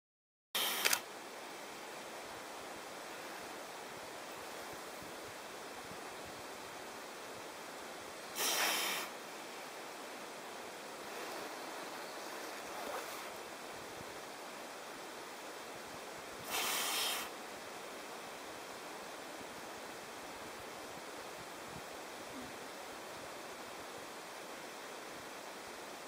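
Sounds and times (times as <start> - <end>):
steady hiss: 0.6 - 26.0
seal breathing: 8.4 - 9.1, 16.4 - 17.3
seal blowing through nostrils: 8.4 - 9.2, 16.4 - 17.3.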